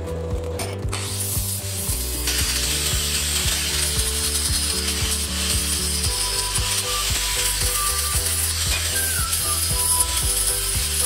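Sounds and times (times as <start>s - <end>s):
background music with ticking beat: 0.0s - 11.0s.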